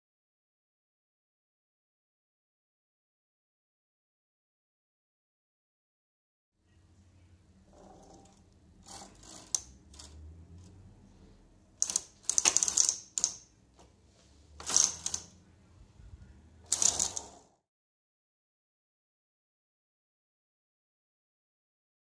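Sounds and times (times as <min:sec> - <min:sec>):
knitting machine carriage clattering: 0:07.8 - 0:10.8, 0:11.8 - 0:13.9, 0:14.5 - 0:15.4, 0:16.6 - 0:17.5.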